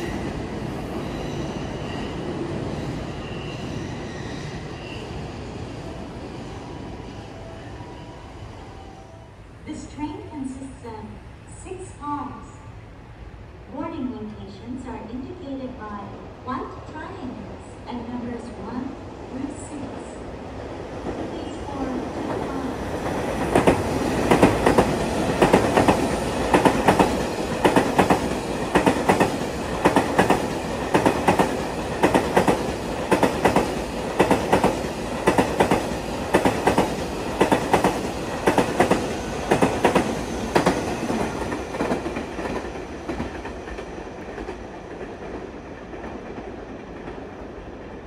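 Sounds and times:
train rumble: 0:19.6 - 0:48.0
train wheels clacking on rail joints: 0:23.4 - 0:45.3.

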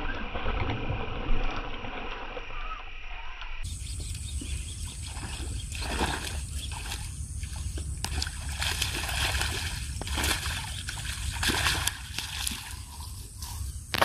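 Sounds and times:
fish splashing in water: 0:04.8 - 0:13.2.

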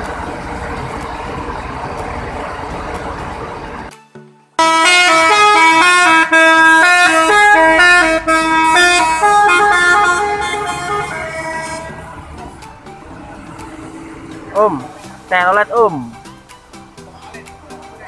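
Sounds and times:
multi-trumpet bus horn tune: 0:04.6 - 0:16.2.

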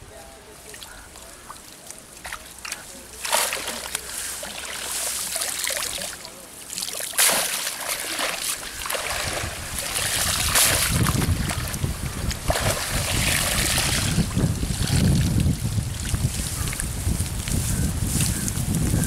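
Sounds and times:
water splashing off net: 0:02.2 - 0:15.1
wind buffeting microphone: 0:08.6 - 0:19.0.

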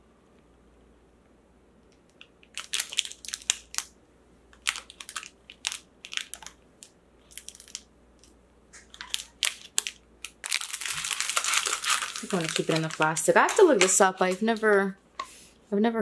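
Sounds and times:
plastic bag crinkling: 0:02.2 - 0:15.0.

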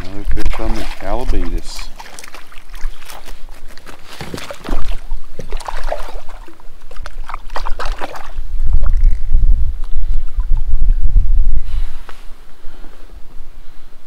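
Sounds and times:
water splashing and sloshing: 0:00.0 - 0:11.2.

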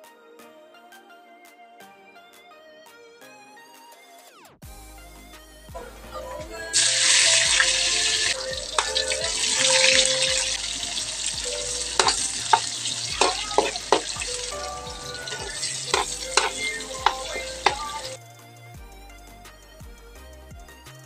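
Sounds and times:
metal ladle scraping a wok: 0:06.8 - 0:18.2
onions frying in hot oil: 0:06.8 - 0:18.2.

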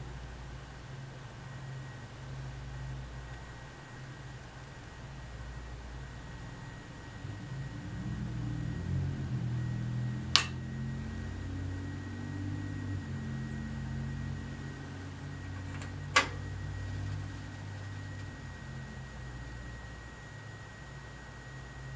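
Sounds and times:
electronics low hum: 0:00.0 - 0:21.9
power switch clicks: 0:10.4 - 0:10.6.

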